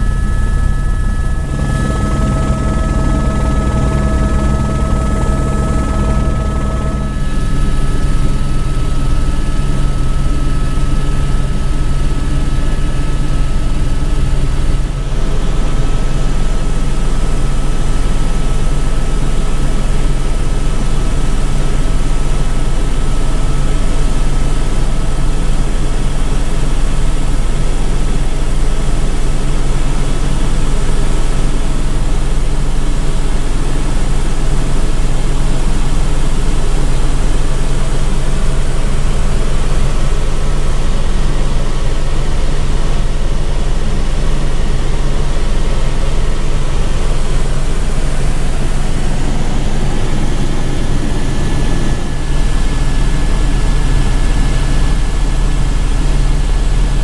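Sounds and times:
turbine whine: 0.0s - 21.9s, 33.7s - 57.0s
helicopter rotor drone: 0.0s - 57.0s.

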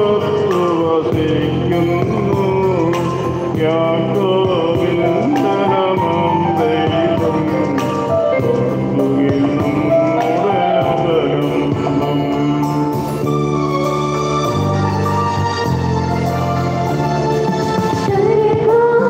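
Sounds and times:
hymn singing with accompaniment: 0.0s - 13.7s.

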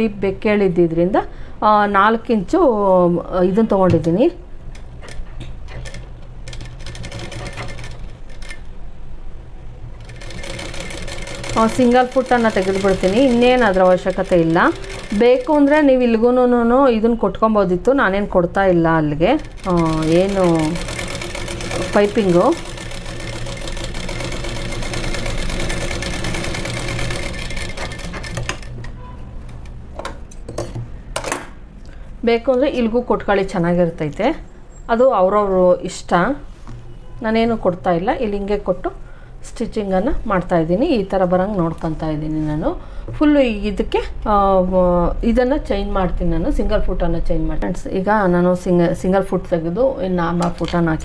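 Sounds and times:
sewing machine stitching: 4.7s - 8.6s, 10.0s - 15.8s, 19.4s - 29.0s.

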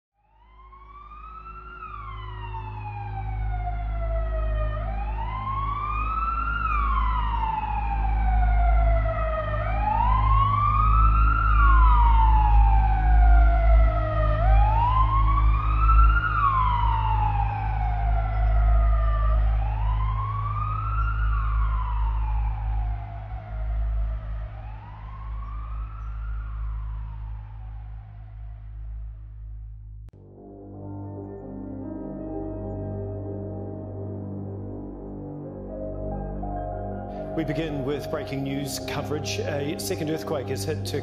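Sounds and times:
siren wailing: 0.3s - 29.1s, 30.6s - 41.0s
deep low rumble: 2.8s - 30.2s.

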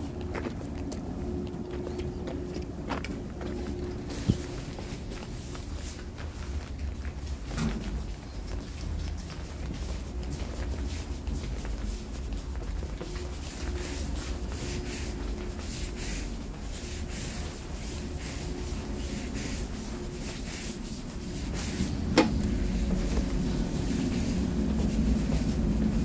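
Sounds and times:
electric train rumble and hum: 0.0s - 26.0s
sliding door shutting knock: 22.1s - 22.5s.

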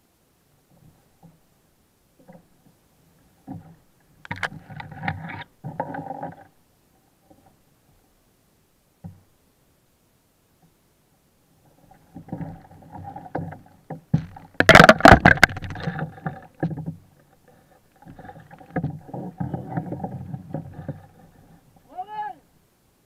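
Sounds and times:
water splashing: 11.7s - 22.0s
knocks against a kayak: 13.3s - 17.0s.

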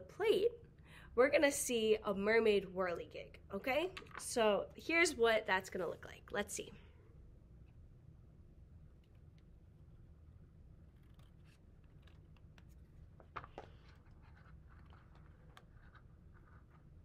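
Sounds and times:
scratchy paper sounds: 10.9s - 17.0s.

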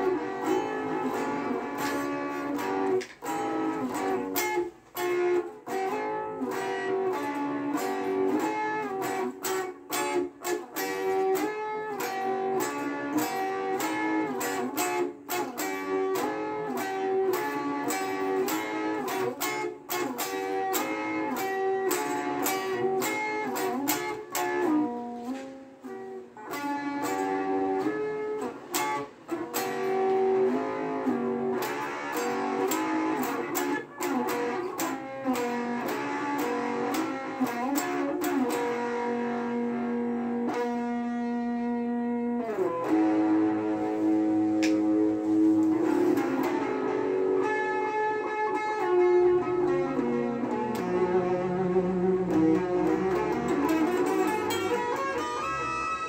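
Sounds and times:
electric guitar runs and riffs: 0.0s - 56.0s.

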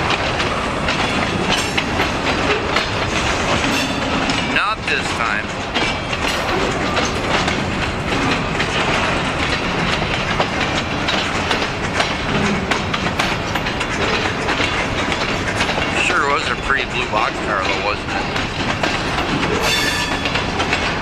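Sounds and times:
sharp clicks of rail wheels: 0.0s - 21.0s
train wheels rumbling on rails: 0.0s - 21.0s.

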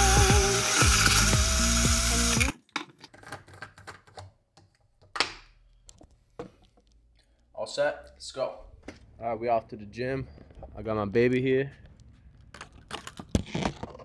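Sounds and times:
background music: 0.0s - 2.5s
blender running loudly: 0.0s - 2.6s.

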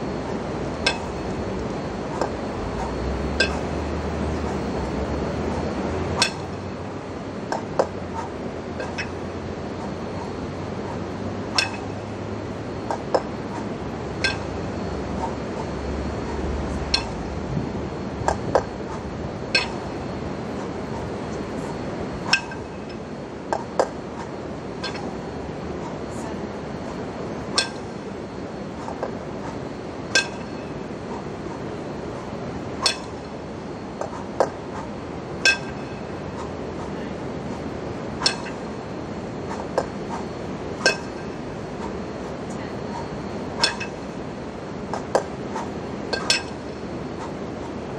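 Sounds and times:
steady low hum: 0.0s - 47.9s
kettlebells ringing chinks: 11.5s - 12.1s, 19.5s - 20.0s, 30.1s - 30.8s, 32.8s - 33.3s, 35.4s - 36.2s, 40.8s - 41.4s, 43.6s - 44.1s, 46.1s - 46.7s.

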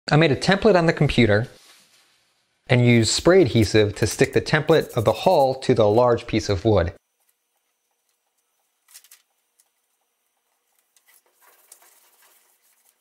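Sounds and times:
paper rustling: 3.0s - 5.6s, 10.8s - 13.0s.

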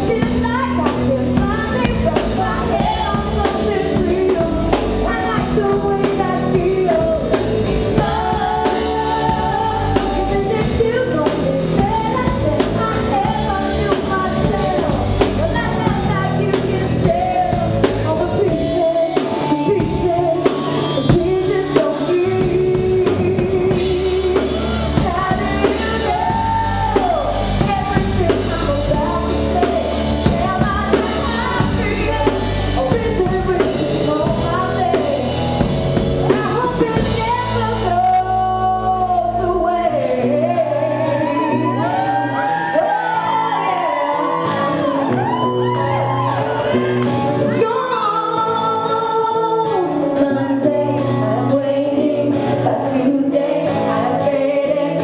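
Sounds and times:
instrumental backing with drums: 0.0s - 38.4s
woman singing pop-rock: 0.0s - 55.0s.

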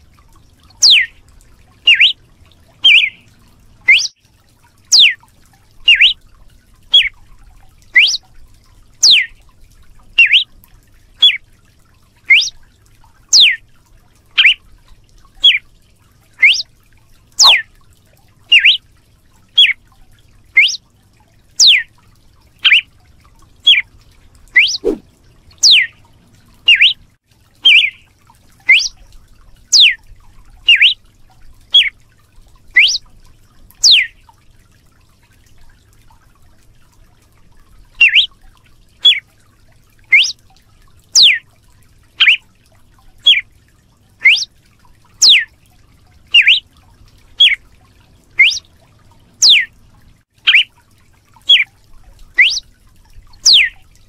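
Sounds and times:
bird whistled whip call: 0.8s - 1.2s, 1.9s - 2.2s, 2.8s - 3.2s, 3.9s - 4.2s, 4.9s - 5.2s, 5.9s - 6.2s, 6.9s - 7.1s, 8.0s - 8.2s, 9.0s - 9.3s, 10.2s - 10.5s, 11.2s - 11.4s, 12.3s - 12.6s, 13.4s - 13.6s, 14.4s - 14.6s, 16.4s - 16.7s, 17.4s - 17.6s, 18.5s - 18.8s, 19.6s - 19.8s, 20.6s - 20.8s, 21.6s - 21.9s, 22.6s - 22.8s, 24.6s - 25.0s, 25.6s - 25.9s, 26.7s - 27.0s, 27.6s - 28.0s, 28.7s - 28.9s, 29.8s - 30.0s, 30.7s - 31.0s, 32.8s - 33.0s, 33.8s - 34.1s, 38.0s - 38.3s, 40.1s - 40.4s, 41.2s - 41.4s, 42.2s - 42.4s, 44.2s - 44.5s, 45.2s - 45.5s, 46.4s - 46.6s, 47.4s - 47.6s, 48.4s - 48.6s, 49.4s - 49.7s, 50.5s - 50.7s, 51.5s - 51.7s, 52.4s - 52.6s, 53.5s - 53.8s.

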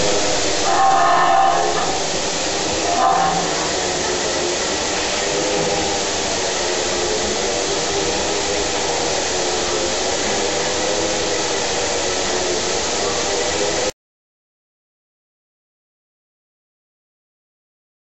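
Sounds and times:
faint steady hum: 0.0s - 13.2s
machine whirring and hissing: 0.0s - 13.9s.

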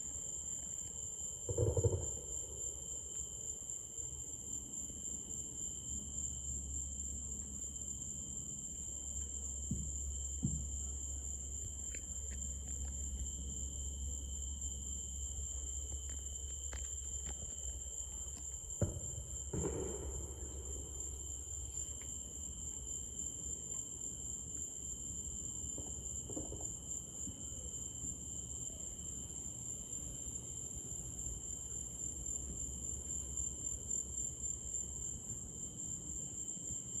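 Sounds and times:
crickets and insects trilling: 0.0s - 29.2s.

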